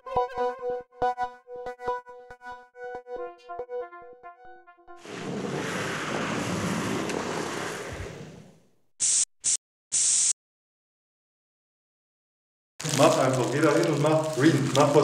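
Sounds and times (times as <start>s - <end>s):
broad rushing noise: 5.0s - 8.5s
spray can hissing: 9.0s - 10.4s.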